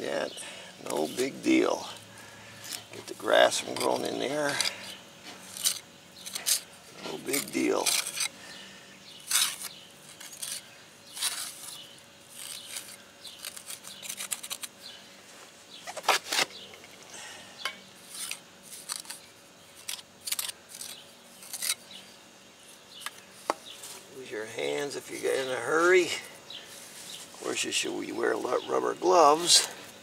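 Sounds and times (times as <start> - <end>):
trowel scraping mortar: 3.5 - 8.3, 9.2 - 14.7.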